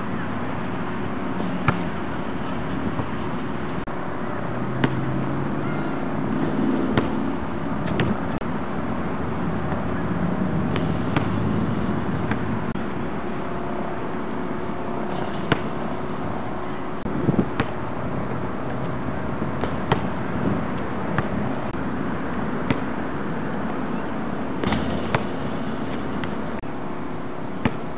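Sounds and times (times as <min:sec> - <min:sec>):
basketball hitting hoop: 0:01.6 - 0:02.0, 0:06.9 - 0:07.2, 0:10.7 - 0:11.4, 0:12.2 - 0:12.5, 0:15.2 - 0:15.7, 0:17.5 - 0:17.8, 0:19.6 - 0:20.2, 0:24.6 - 0:26.4, 0:27.6 - 0:27.9
basketball bouncing on concrete: 0:06.9 - 0:07.2, 0:19.6 - 0:20.1, 0:24.6 - 0:25.4, 0:27.6 - 0:27.8.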